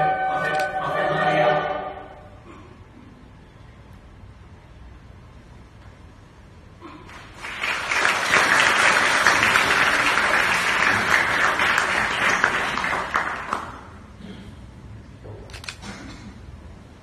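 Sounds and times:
audience applauding: 7.1 - 14.0.

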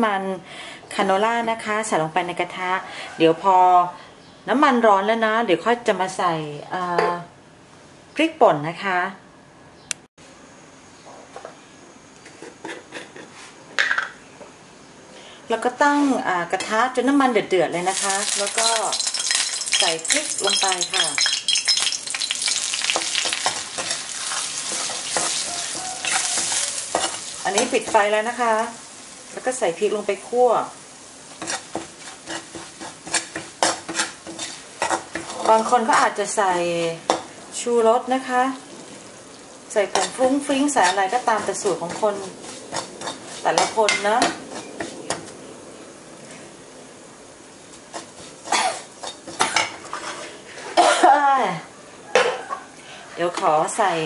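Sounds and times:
chili flakes sizzling in oil: 15.8 - 51.5
metal ladle scraping a wok: 17.9 - 28.0, 31.4 - 36.2, 39.9 - 45.0, 47.9 - 50.8.

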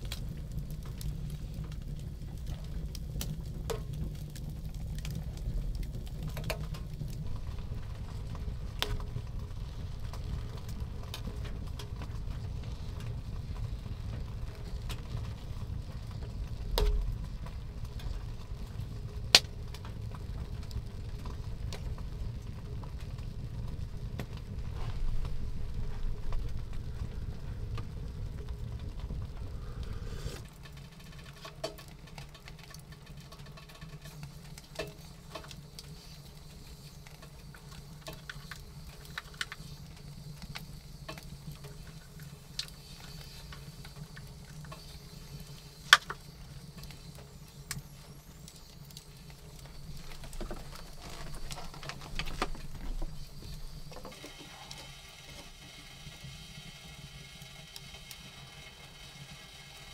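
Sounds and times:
low rumble: 0.0 - 30.6
faint steady hum: 0.0 - 59.9.

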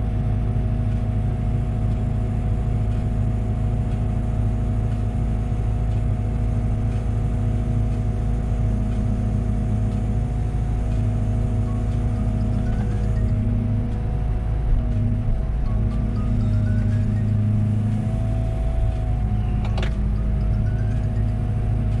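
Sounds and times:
excavator diesel engine running: 0.0 - 22.0
faint rising whine: 11.3 - 22.0.

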